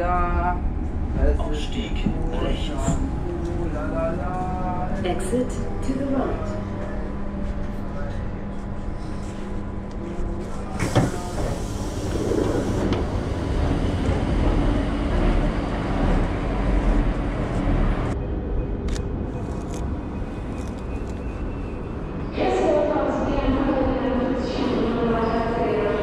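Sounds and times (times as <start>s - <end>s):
train carriage hum: 0.0s - 26.0s
train rumbling pulling out: 0.0s - 26.0s
train door opening clunk: 10.6s - 15.5s.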